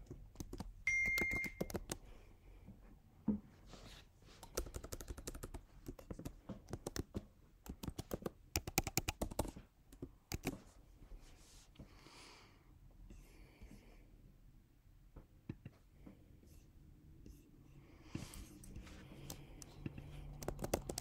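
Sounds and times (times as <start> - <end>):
typing on computer keyboard: 0.0 - 2.0, 4.4 - 10.6, 19.2 - 21.0
short high beep: 0.9 - 1.6.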